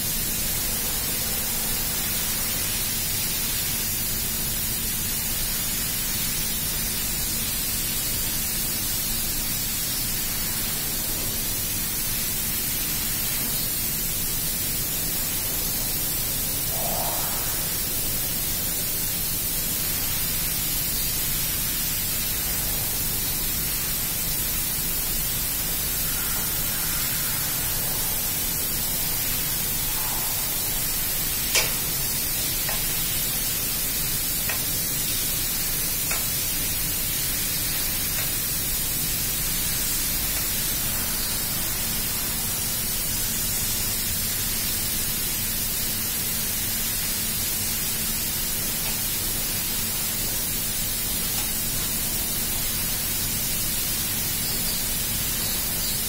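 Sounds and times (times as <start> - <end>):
steady hiss: 0.0 - 56.0.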